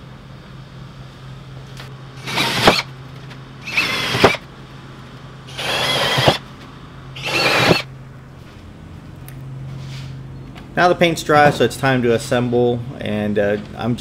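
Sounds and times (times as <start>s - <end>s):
cordless drill boring wood: 2.2s - 2.9s, 3.6s - 4.4s, 5.5s - 6.4s, 7.2s - 7.9s.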